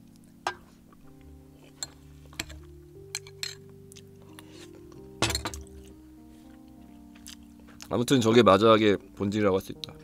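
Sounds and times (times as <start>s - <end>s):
soft background music: 0.0s - 10.0s
metal spoon clinking on ceramic bowl: 1.7s - 3.7s.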